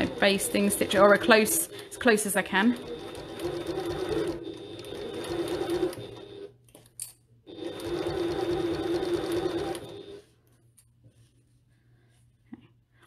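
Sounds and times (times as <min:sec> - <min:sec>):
sewing machine stitching: 0:00.0 - 0:06.6, 0:07.5 - 0:10.2.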